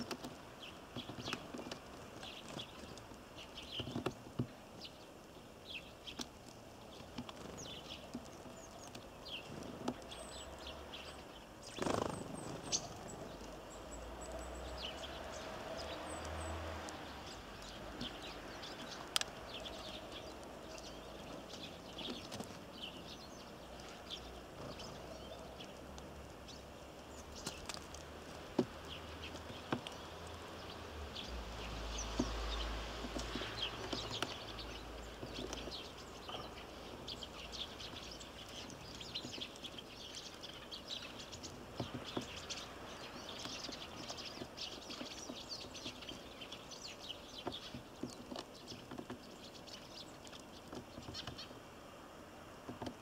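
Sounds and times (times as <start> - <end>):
small birds chirping: 0.0 - 53.0
light taps and clicks: 17.6 - 22.6, 25.6 - 30.7, 32.0 - 36.6.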